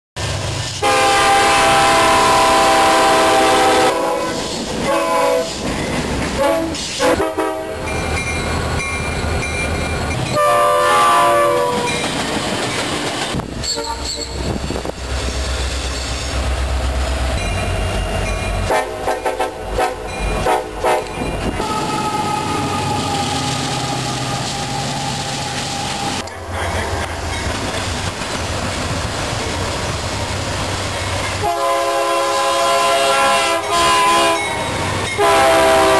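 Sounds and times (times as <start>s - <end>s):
locomotive engine rumble: 0.2s - 34.0s
locomotive air horn: 0.8s - 5.6s, 6.4s - 7.9s, 10.3s - 12.0s, 13.6s - 14.6s, 17.8s - 26.9s, 31.4s - 35.9s
wheels clacking over rail joints: 4.4s - 7.0s, 11.6s - 16.4s.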